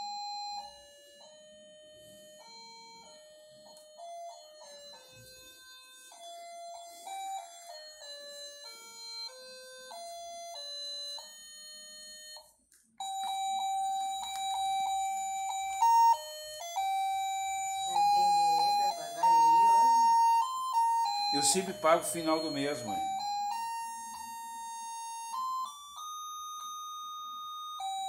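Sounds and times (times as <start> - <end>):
electronic beeping tune: 13.0 - 25.7.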